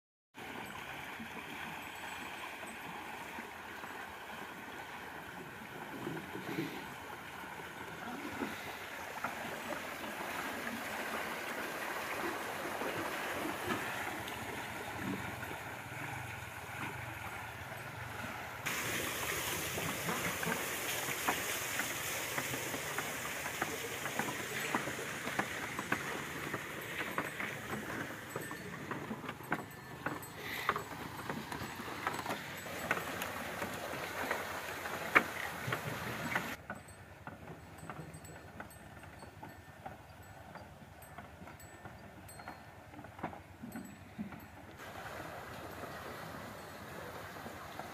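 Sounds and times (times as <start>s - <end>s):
rush of spilling water: 6.4s - 16.8s, 18.6s - 28.4s, 31.8s - 36.6s, 44.8s - 47.9s.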